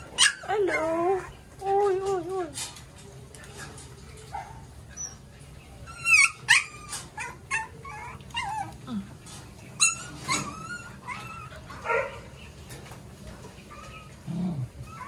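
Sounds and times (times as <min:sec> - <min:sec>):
puppies whining and yelping: 0:00.0 - 0:01.4, 0:04.9 - 0:08.8, 0:09.8 - 0:11.9, 0:13.7 - 0:15.0.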